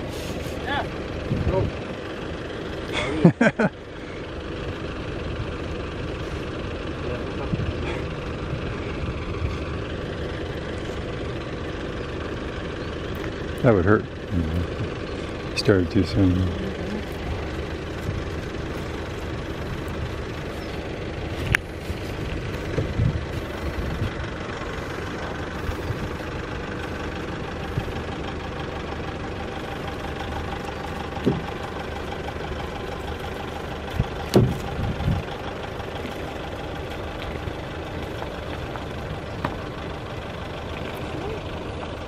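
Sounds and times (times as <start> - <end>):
vehicle engine idling: 0.0 - 42.0
sharp knocks and thumps: 31.2 - 31.7, 34.0 - 35.2.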